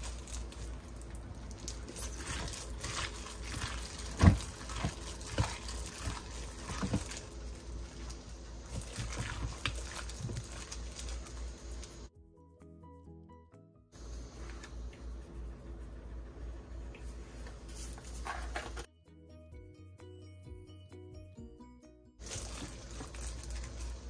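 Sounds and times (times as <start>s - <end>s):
wet squishes of raw meat: 0.0s - 11.4s.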